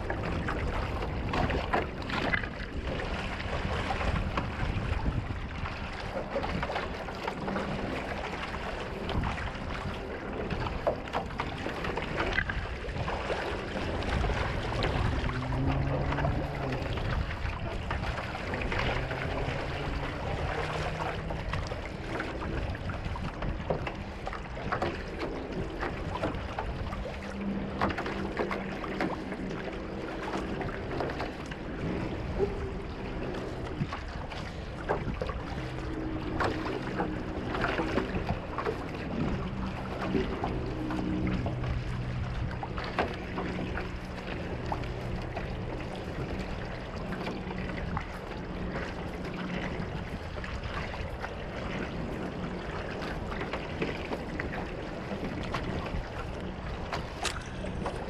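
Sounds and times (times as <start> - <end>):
paddle dipping in water: 0.0 - 58.0
water splashing along canoe hull: 0.0 - 58.0
wind on microphone: 0.0 - 58.0.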